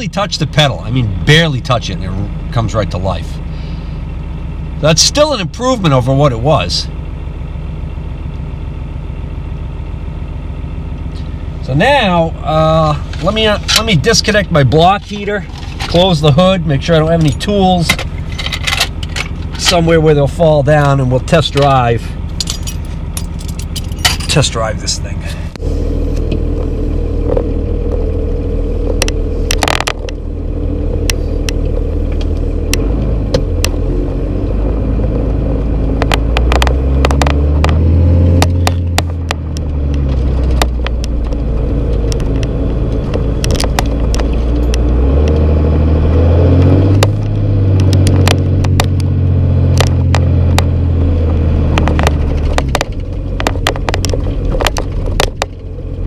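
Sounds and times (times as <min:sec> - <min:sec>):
diesel engine accelerating: 0:00.0 - 0:56.0
cab clicks and rattles: 0:51.3 - 0:55.7.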